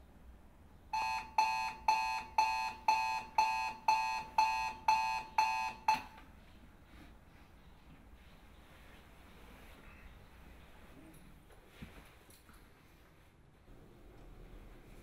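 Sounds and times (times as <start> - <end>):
alarm clock beeping: 0.9 - 6.2.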